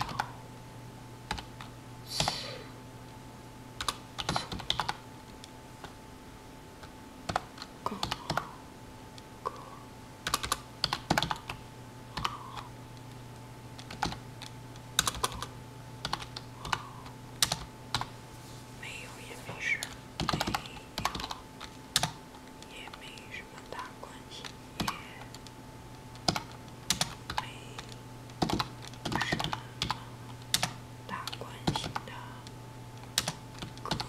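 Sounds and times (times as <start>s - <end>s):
computer keyboard typing: 0.0s - 0.4s, 1.3s - 2.4s, 3.8s - 6.0s, 6.8s - 8.5s, 10.2s - 13.1s, 13.8s - 18.1s, 19.8s - 23.8s, 24.4s - 32.2s, 33.0s - 34.0s.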